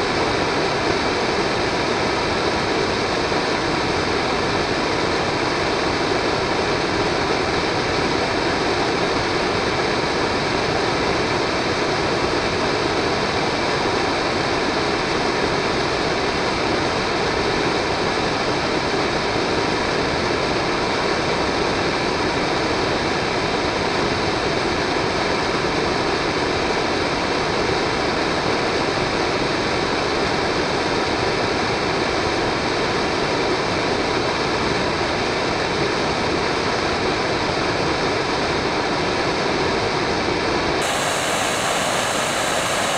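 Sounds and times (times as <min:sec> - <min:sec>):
model rocket engine exhaust rushing: 0:40.8 - 0:42.9.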